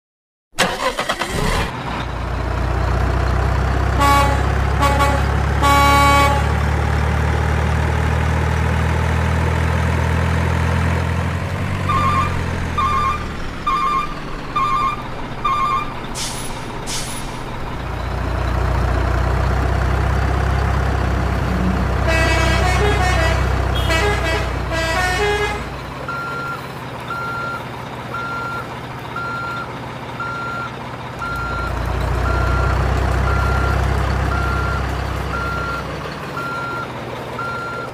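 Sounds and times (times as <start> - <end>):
truck engine running: 0.6 - 37.9
truck horn honks: 3.9 - 6.6, 11.8 - 15.9, 21.2 - 26.3
beeps: 11.9 - 16.0, 26.1 - 27.6, 28.2 - 28.6
reversing beeps: 11.9 - 16.0, 26.1 - 37.9
air brake hisses: 16.2 - 17.5.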